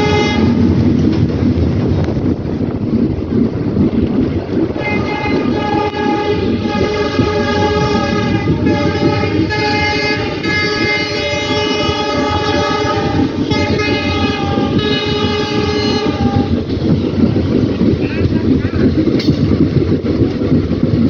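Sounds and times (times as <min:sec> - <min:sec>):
train horn blasts: 0:00.0 - 0:00.8, 0:04.8 - 0:16.7
moving train rumble and clatter: 0:00.0 - 0:21.0.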